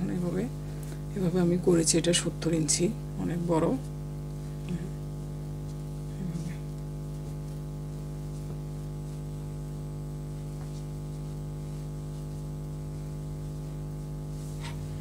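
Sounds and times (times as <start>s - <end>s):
steady low hum: 0.0s - 15.0s
scarf rustling: 7.0s - 15.0s.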